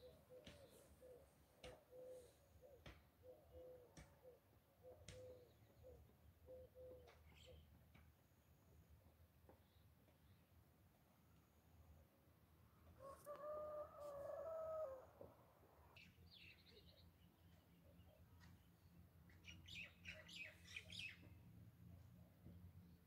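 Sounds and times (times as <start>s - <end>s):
rooster crowing: 13.0s - 15.2s
small birds chirping: 15.9s - 21.4s.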